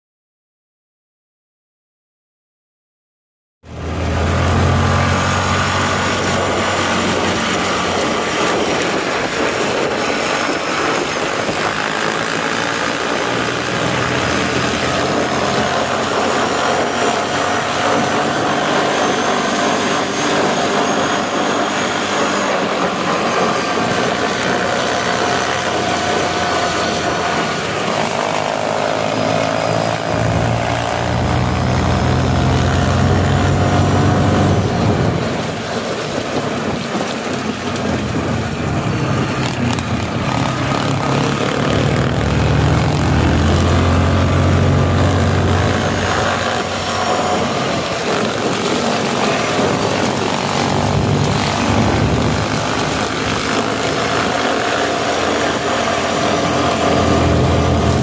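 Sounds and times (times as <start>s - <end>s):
motorbike engines running: 3.7s - 58.0s
tyres on gravel: 45.2s - 58.0s
low hum: 55.4s - 58.0s.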